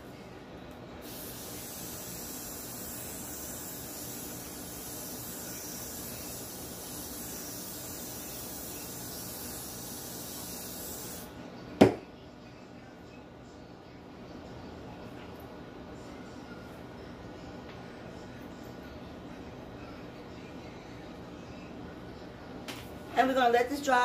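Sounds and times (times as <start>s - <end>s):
aerosol hairspray hissing: 1.0s - 11.3s.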